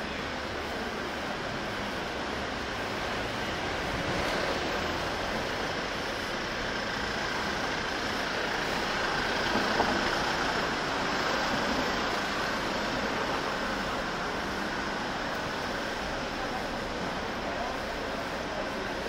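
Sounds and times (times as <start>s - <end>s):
city road traffic: 0.0s - 19.0s.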